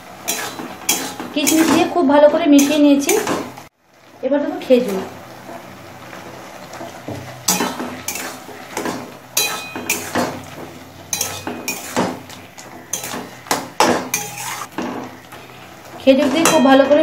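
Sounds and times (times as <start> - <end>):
metal spatula scraping a pan: 0.2 - 2.0, 2.6 - 3.6, 6.8 - 15.2.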